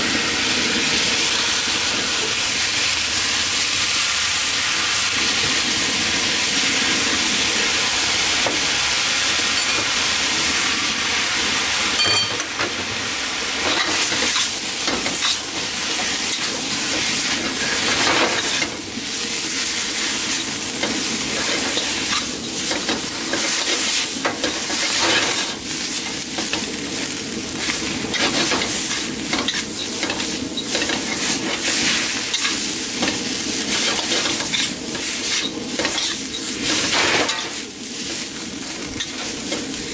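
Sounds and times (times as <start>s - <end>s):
noodles sizzling in a wok: 0.0s - 39.9s
metal utensil scraping a wok: 21.3s - 25.6s, 28.1s - 38.3s, 38.9s - 39.8s.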